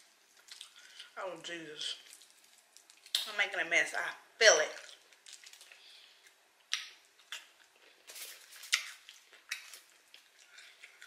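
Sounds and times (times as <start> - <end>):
wet eating sounds: 0.2 - 1.2, 1.9 - 3.3, 4.7 - 11.0.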